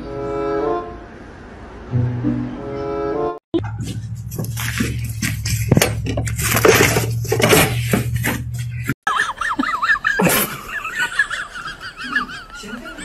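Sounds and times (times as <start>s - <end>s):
loud rushing noise: 1.0s - 3.0s
low hum: 3.6s - 8.9s.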